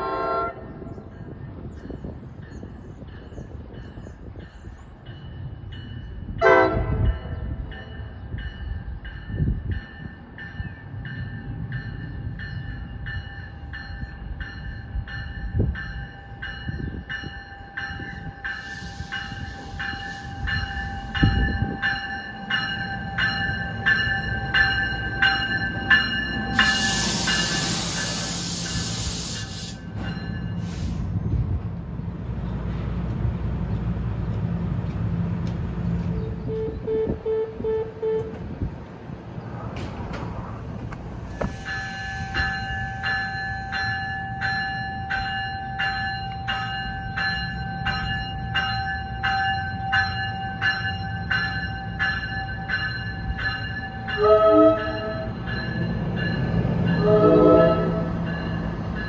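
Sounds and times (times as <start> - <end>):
crossing warning bell ringing: 0.0 - 31.0, 36.0 - 38.6, 41.4 - 59.0
diesel train rumble: 0.0 - 59.0
train hiss: 18.4 - 21.3, 26.5 - 31.4, 41.1 - 43.4.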